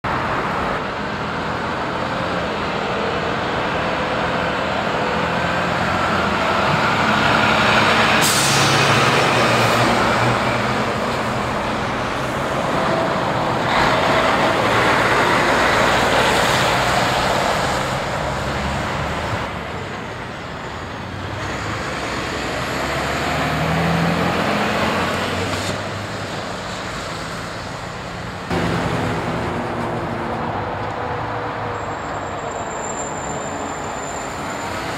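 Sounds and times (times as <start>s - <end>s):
diesel trucks driving past: 0.1s - 34.9s
air brakes hissing: 8.2s - 9.1s.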